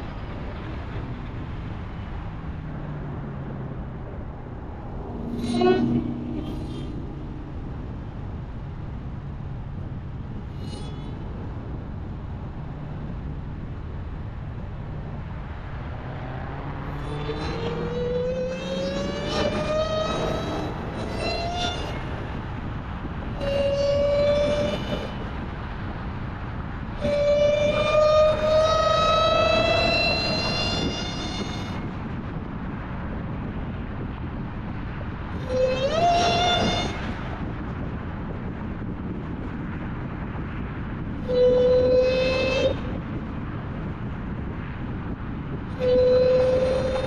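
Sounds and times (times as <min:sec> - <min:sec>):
car engine accelerating with whine: 0:12.3 - 0:21.0.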